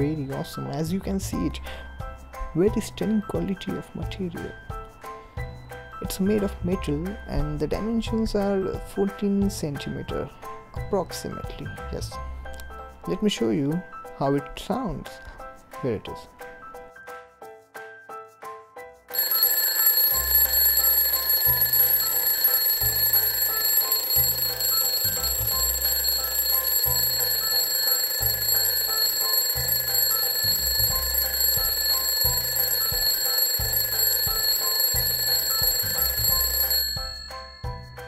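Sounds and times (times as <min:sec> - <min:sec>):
twin-bell alarm clock ringing: 0:19.1 - 0:38.0.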